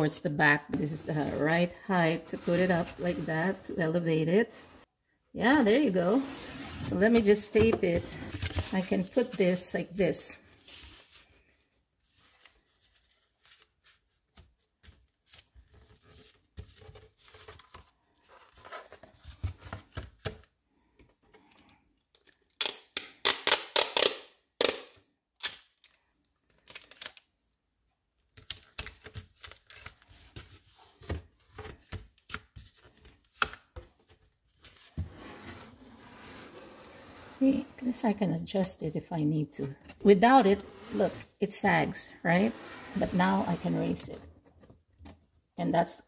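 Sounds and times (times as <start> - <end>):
packing tape ripping: 22.6 - 26.0.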